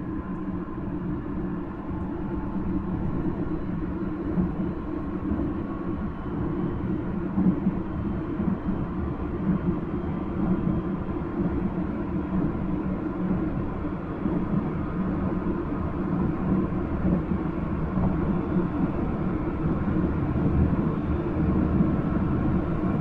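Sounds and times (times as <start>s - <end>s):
train running gear rumble: 0.0s - 23.0s.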